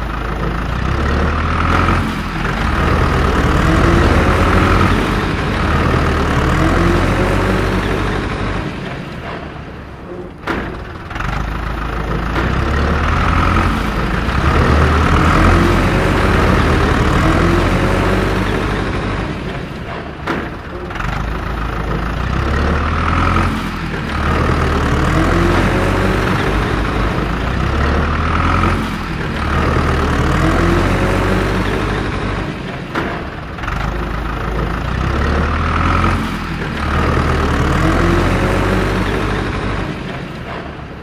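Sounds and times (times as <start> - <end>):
heavy engine revving: 0.0 - 41.0.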